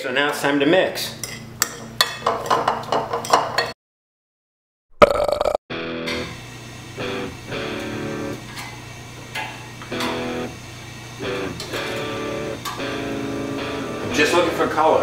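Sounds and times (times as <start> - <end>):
strummed guitar chords: 5.7 - 8.5, 9.9 - 10.6, 11.2 - 15.0.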